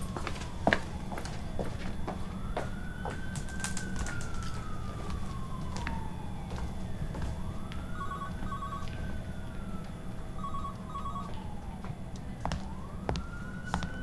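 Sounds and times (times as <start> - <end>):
siren wailing: 0.0 - 14.0
telephone ringing: 8.0 - 9.1, 10.4 - 11.4.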